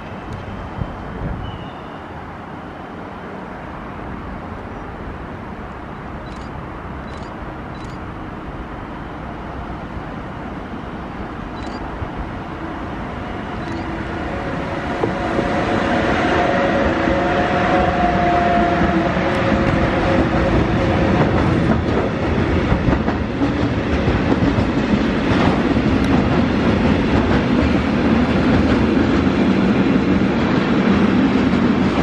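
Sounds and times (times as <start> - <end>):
locomotive humming whine: 0.0 - 23.5
freight train rumbling: 0.0 - 32.0.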